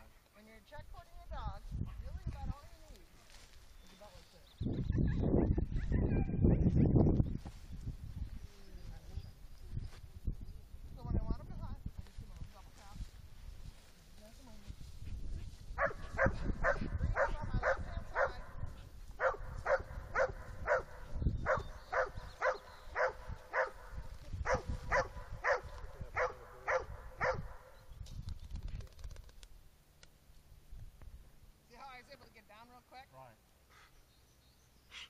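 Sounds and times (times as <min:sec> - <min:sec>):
wind rumble on microphone: 0:00.8 - 0:02.9, 0:04.6 - 0:29.4, 0:30.6 - 0:31.3
dog barking: 0:05.7 - 0:06.4, 0:15.8 - 0:27.8.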